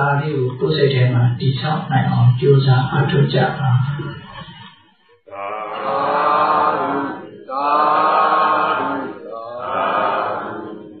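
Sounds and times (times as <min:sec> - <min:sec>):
people chanting long calls: 0:05.2 - 0:11.0.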